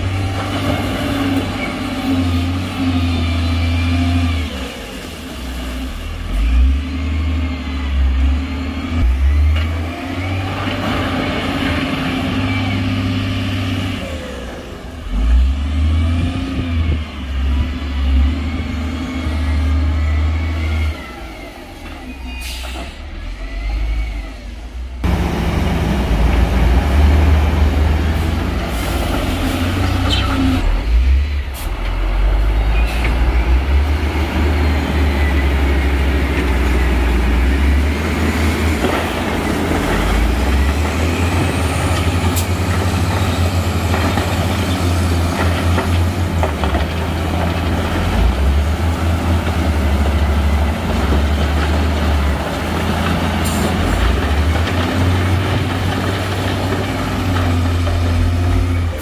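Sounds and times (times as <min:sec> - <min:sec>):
heavy diesel engines rumbling: 0:00.0 - 0:59.0
air brake hisses: 0:22.4 - 0:23.1.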